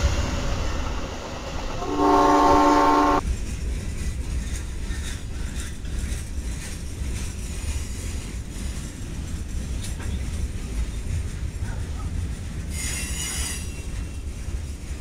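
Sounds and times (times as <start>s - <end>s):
train rumbling past: 0.0s - 15.0s
wheels clanking over rail joints: 3.2s - 15.0s.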